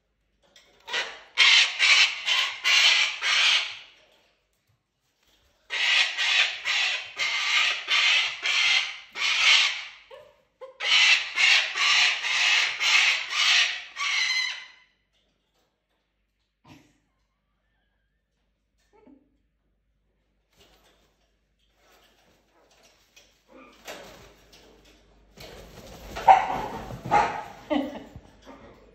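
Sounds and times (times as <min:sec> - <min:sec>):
parrots screeching: 0:00.9 - 0:03.9, 0:05.7 - 0:10.0, 0:10.8 - 0:14.8.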